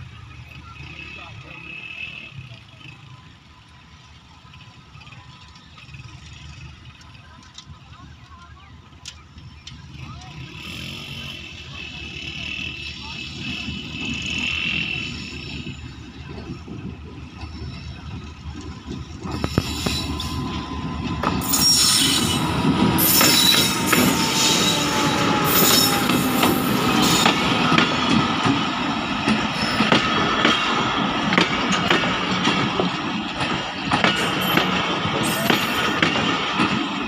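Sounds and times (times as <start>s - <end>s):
diesel train passing: 0.0s - 37.0s
wheels squealing: 9.5s - 37.0s
wheels clattering over rail joints: 13.1s - 37.0s.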